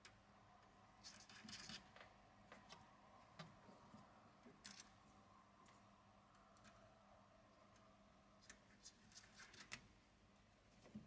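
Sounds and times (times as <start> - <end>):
faint clicks and scraping of hands: 5.6 - 7.0, 7.6 - 10.0.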